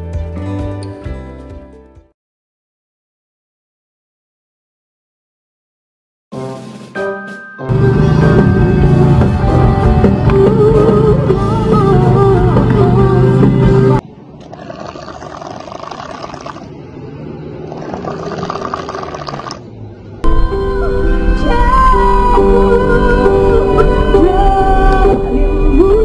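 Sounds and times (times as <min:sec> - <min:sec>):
music with steady bass: 0:06.4 - 0:14.0.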